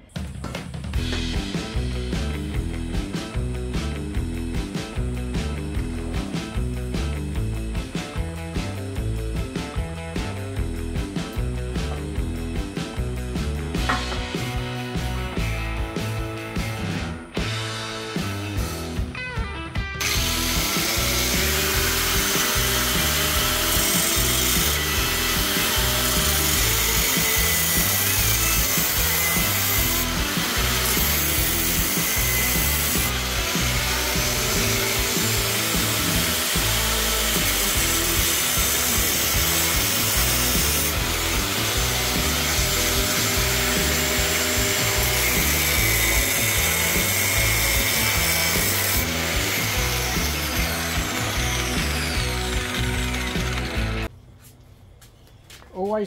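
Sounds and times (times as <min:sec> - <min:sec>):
background music with a beat: 0:00.0 - 0:54.1
angle grinder cutting steel: 0:13.8 - 0:15.6, 0:20.0 - 0:54.1.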